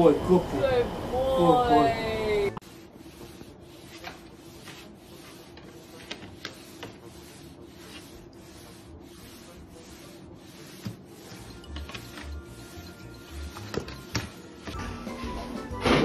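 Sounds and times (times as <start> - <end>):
cloth wiping wooden countertop: 2.6 - 15.4.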